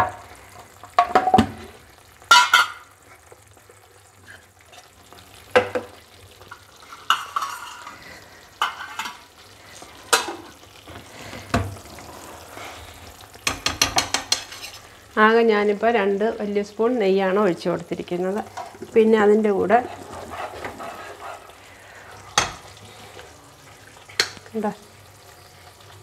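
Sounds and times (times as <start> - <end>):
mixture frying: 0.0 - 26.0
metal spoon scraping a pan: 6.4 - 10.6, 13.4 - 15.0, 19.7 - 23.3.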